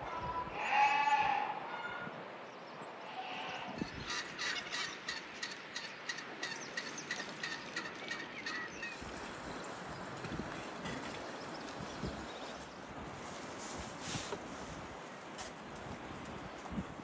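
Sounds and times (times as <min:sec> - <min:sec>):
poultry calling: 0:00.1 - 0:02.0, 0:03.0 - 0:09.2.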